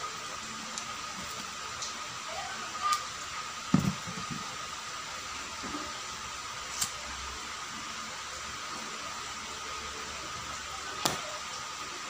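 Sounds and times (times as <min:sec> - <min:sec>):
electric fan humming: 0:00.0 - 0:12.0.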